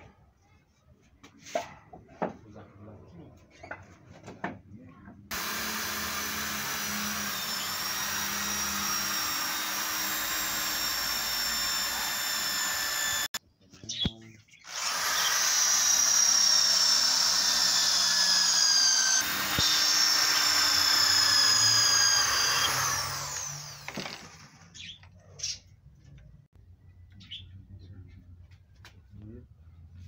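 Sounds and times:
electric drill into wood: 0:05.3 - 0:13.4, 0:14.6 - 0:24.9.

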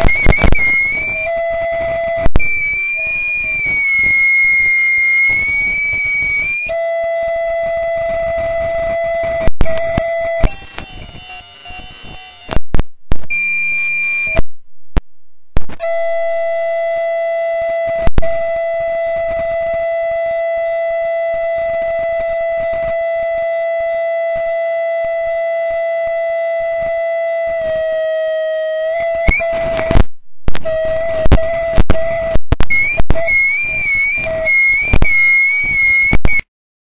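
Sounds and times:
audio feedback whine: 0:00.0 - 0:36.5
loud pops: 0:29.3 - 0:33.2.

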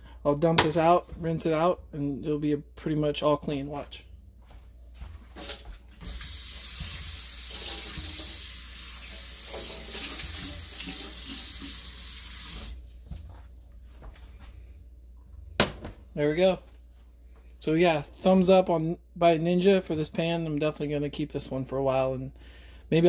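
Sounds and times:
tap running into sink: 0:05.4 - 0:11.7.

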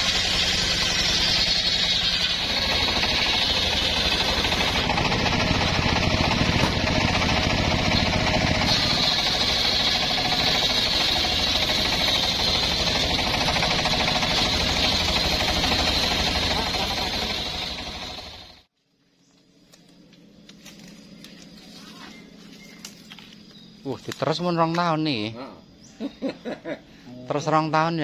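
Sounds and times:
low hum of drive motor: 0:00.0 - 0:18.5
circular saw cutting wood: 0:00.0 - 0:18.7.

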